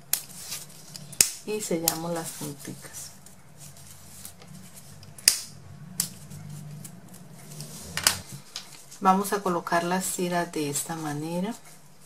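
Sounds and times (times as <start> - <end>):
faint low hum: 0.0 - 12.0.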